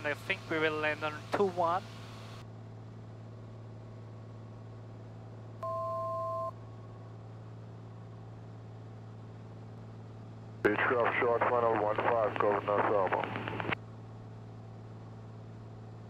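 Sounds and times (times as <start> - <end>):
aircraft engine drone: 0.0 - 2.5, 6.6 - 13.8
two-tone electronic beep: 5.6 - 6.6.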